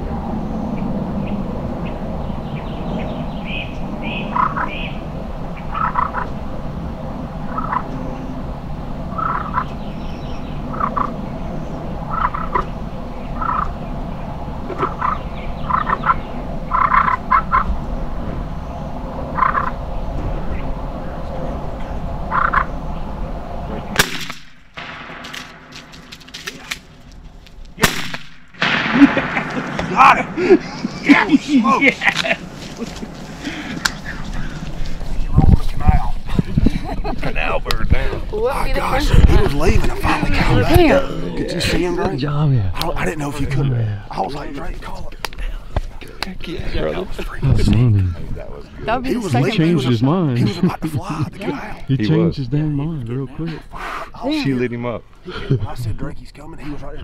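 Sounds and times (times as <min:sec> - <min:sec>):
low rumble: 0:00.0 - 0:38.4
short animal calls: 0:05.7 - 0:06.4, 0:07.5 - 0:07.9, 0:09.1 - 0:09.8, 0:13.4 - 0:13.8
sharp cracks: 0:24.0 - 0:31.1.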